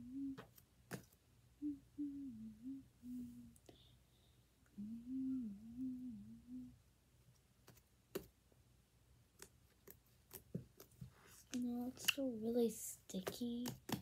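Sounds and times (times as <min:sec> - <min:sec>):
girl humming a tune: 0:00.0 - 0:00.5, 0:01.6 - 0:03.9, 0:04.7 - 0:06.8.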